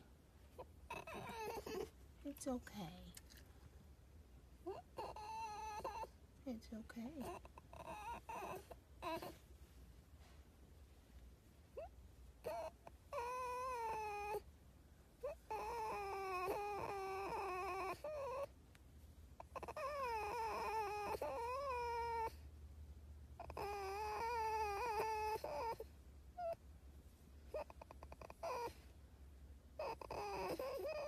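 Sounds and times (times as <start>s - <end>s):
fox whining calls: 0.6s - 1.9s, 4.6s - 6.2s, 7.3s - 9.4s, 11.8s - 14.5s, 15.2s - 18.5s, 19.4s - 22.5s, 23.4s - 26.6s, 27.5s - 28.9s, 29.8s - 31.0s.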